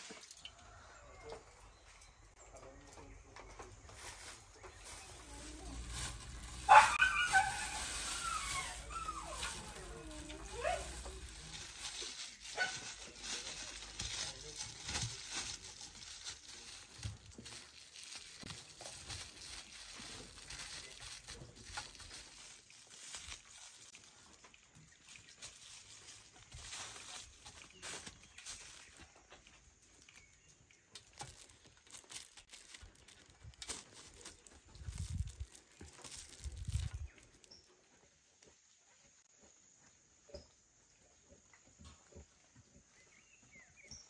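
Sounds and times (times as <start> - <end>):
plastic wrap crinkling: 3.9 - 37.7.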